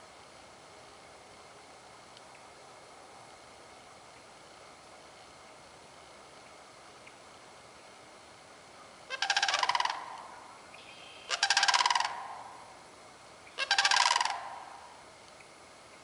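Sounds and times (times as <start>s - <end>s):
cranes bugle calling: 9.1s - 12.8s, 13.4s - 15.0s.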